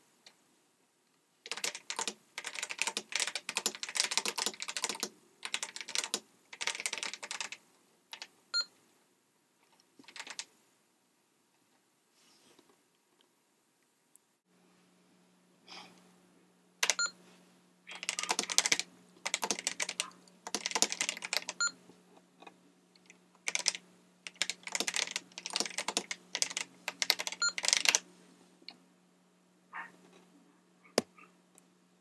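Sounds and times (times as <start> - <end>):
keyboard keystrokes clacking: 1.5 - 8.3, 10.0 - 10.4, 16.8 - 17.1, 17.9 - 21.7, 23.5 - 28.0.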